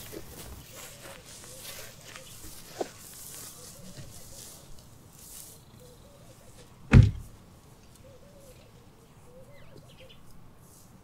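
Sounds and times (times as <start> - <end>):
car door slamming shut: 6.9 - 7.3.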